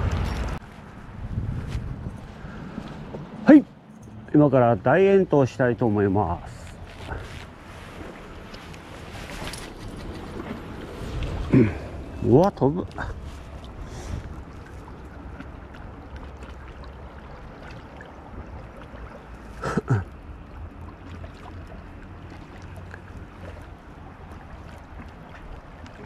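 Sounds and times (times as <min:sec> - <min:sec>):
wind buffeting microphone: 0:00.0 - 0:04.3, 0:06.8 - 0:18.8
water lapping: 0:00.5 - 0:26.0.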